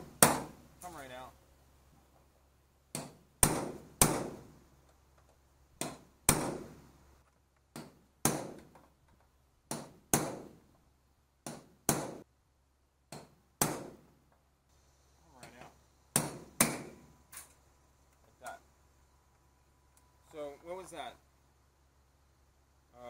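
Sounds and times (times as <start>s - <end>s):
hammer striking metal punch: 2.9s - 4.4s, 5.8s - 6.8s, 7.8s - 8.7s, 9.7s - 10.6s, 11.4s - 12.2s, 13.1s - 14.0s, 16.1s - 17.0s.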